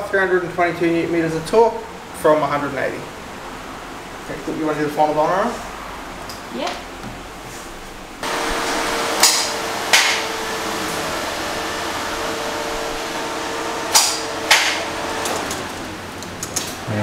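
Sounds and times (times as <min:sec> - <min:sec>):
starter motor whirring: 0:08.2 - 0:16.4
sharp clunks: 0:13.9 - 0:15.7.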